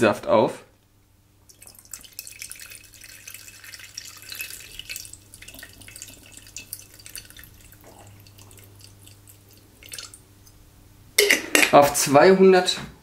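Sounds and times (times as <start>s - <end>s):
liquid pouring into metal pot: 1.4s - 10.6s.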